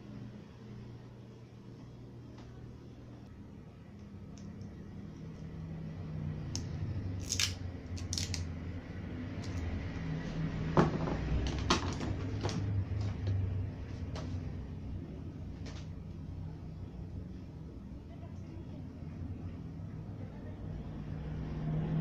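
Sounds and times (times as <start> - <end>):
low steady hum: 0.0 - 22.0
scissors snipping: 6.5 - 8.4.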